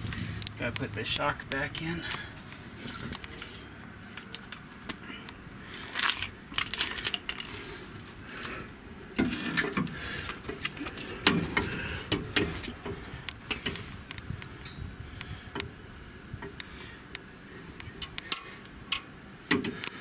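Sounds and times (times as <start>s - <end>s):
metallic tool clicks and clinks: 18.2s - 19.1s.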